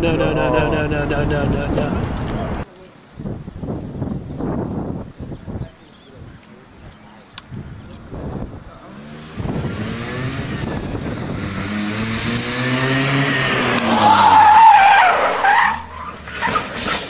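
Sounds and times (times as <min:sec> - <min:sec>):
car engine at high revs passing: 0:08.1 - 0:17.0
tyre squeal: 0:13.9 - 0:17.0.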